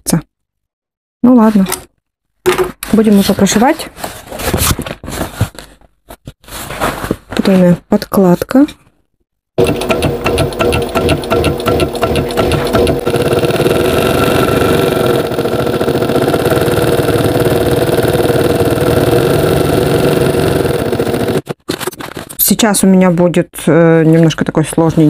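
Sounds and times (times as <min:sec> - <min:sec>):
sewing machine stitching leather: 0:09.6 - 0:21.5.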